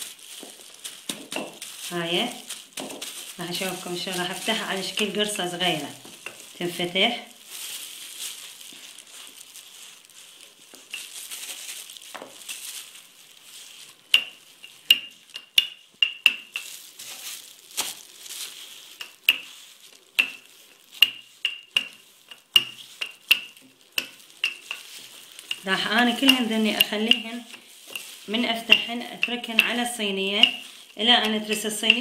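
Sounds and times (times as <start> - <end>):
rolling pin rubbing on dough: 18.5 - 32.0.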